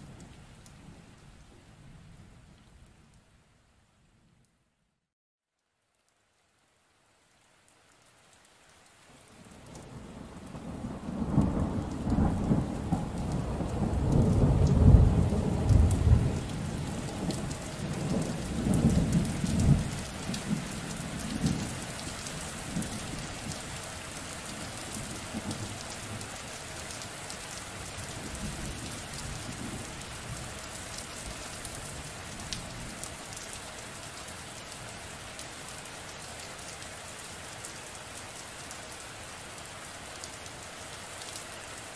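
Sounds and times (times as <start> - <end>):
rain falling: 0.0 - 4.7, 5.5 - 41.9
rolling thunder: 10.0 - 20.6.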